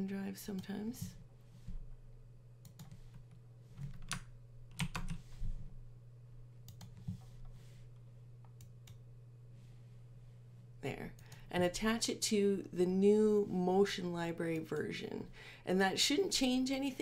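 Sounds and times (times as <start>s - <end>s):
low steady hum: 0.0s - 17.0s
keyboard and mouse clicks: 2.6s - 5.2s, 6.6s - 7.6s.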